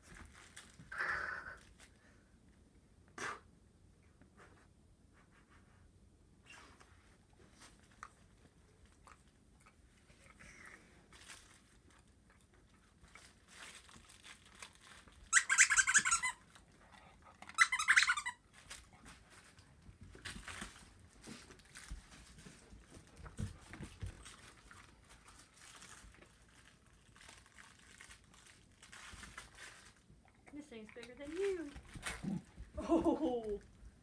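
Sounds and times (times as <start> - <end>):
squeaky dog toy squeaking: 15.3 - 16.5, 17.5 - 18.4.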